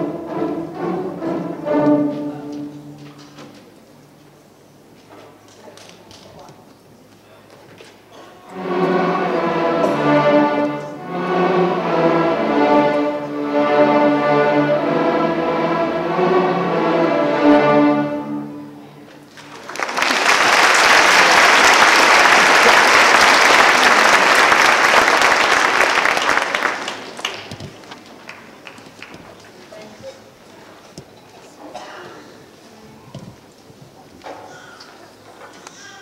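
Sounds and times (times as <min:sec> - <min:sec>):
string orchestra playing: 0:00.0 - 0:03.6, 0:08.4 - 0:19.3
audience applause: 0:19.3 - 0:29.2.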